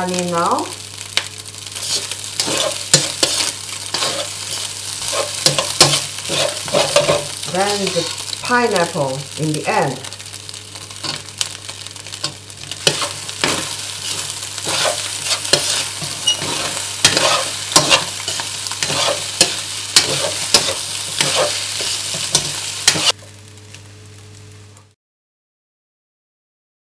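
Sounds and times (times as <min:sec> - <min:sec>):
rice sizzling in a wok: 0:00.0 - 0:25.0
metal spatula scraping a wok: 0:01.7 - 0:08.4, 0:11.0 - 0:11.3, 0:12.2 - 0:23.2.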